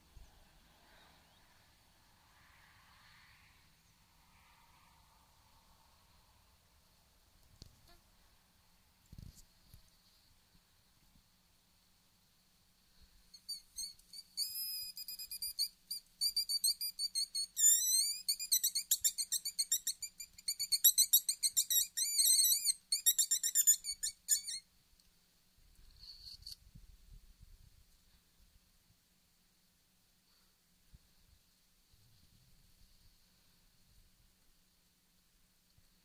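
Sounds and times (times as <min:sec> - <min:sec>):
fox call high squeaks: 0:13.3 - 0:24.7, 0:26.0 - 0:26.6.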